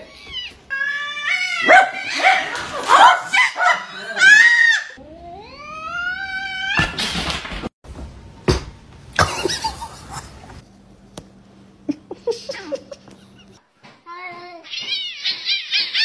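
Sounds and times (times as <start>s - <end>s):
cat yowling: 0.3s - 2.6s, 4.0s - 7.0s.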